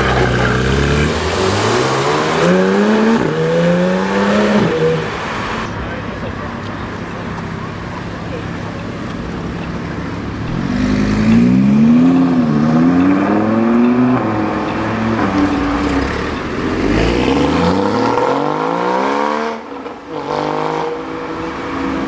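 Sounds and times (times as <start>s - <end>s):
car engine accelerating hard: 10.1s - 22.0s.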